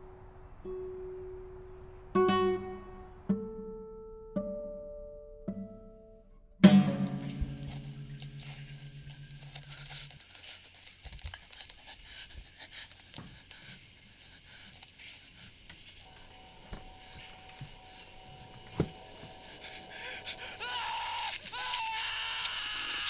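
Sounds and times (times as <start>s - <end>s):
small scratches and knocks: 7.6s - 16.0s
person breathing: 11.6s - 21.5s
faint steady high tone: 16.0s - 20.3s.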